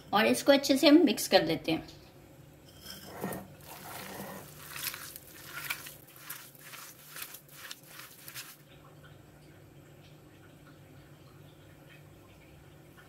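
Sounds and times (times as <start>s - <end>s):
hand kneading minced meat: 3.5s - 8.6s.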